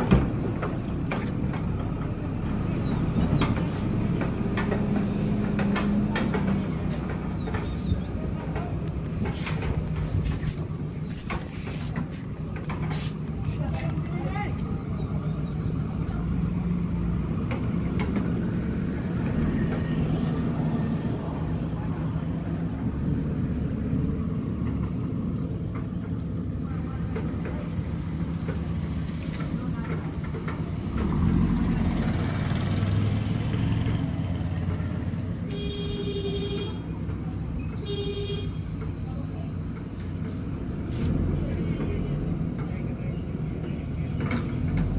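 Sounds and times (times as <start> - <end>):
diesel engine running: 0.0 - 44.9
vehicle horn honking: 35.5 - 36.9, 37.8 - 38.6.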